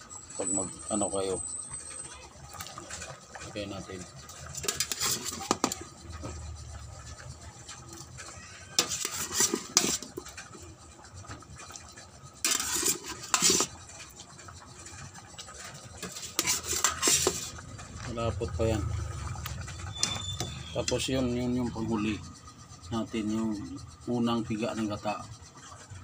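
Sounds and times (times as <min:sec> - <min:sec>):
utensil scraping metal pot: 0:00.0 - 0:26.0.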